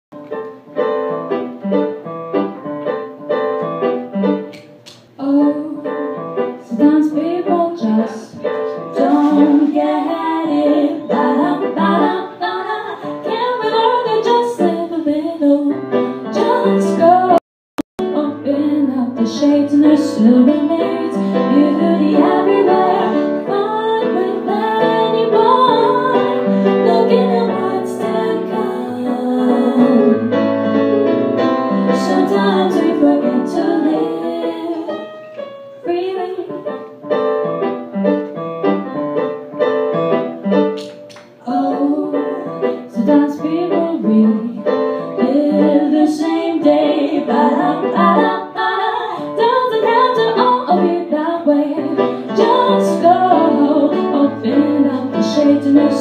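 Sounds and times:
electric keyboard piano sound: 0:00.1 - 0:17.4, 0:18.0 - 0:56.0
woman singing: 0:05.2 - 0:17.4, 0:18.0 - 0:30.3, 0:31.9 - 0:35.2, 0:35.8 - 0:36.8, 0:41.4 - 0:56.0.

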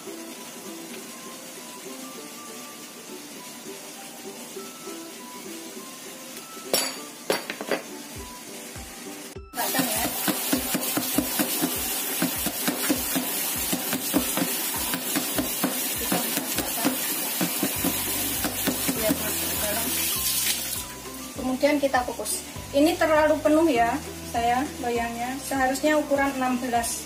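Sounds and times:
metal pan knocking on board: 0:06.7 - 0:07.9, 0:09.7 - 0:19.3.

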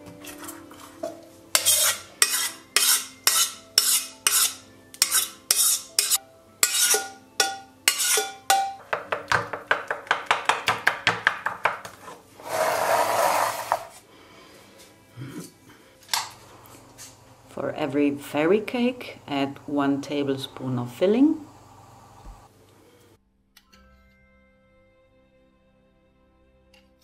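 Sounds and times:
wooden spoon scraping a saucepan: 0:00.2 - 0:07.1, 0:07.9 - 0:08.4, 0:11.9 - 0:14.0.

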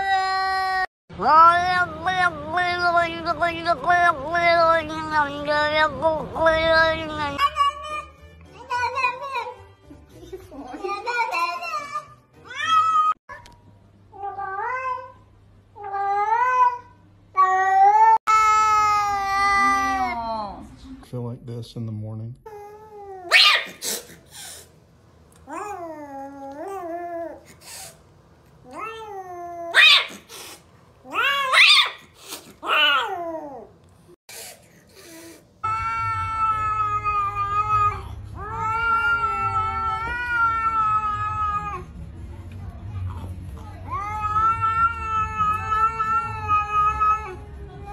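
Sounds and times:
cat hissing: 0:23.3 - 0:24.8, 0:29.7 - 0:33.2, 0:34.3 - 0:35.5
cat meowing: 0:31.0 - 0:33.6, 0:35.6 - 0:41.9, 0:43.9 - 0:47.9.

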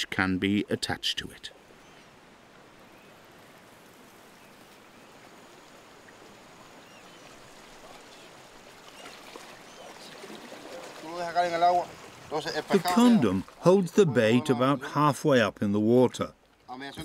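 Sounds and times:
sea water lapping on rocks: 0:07.1 - 0:13.8.

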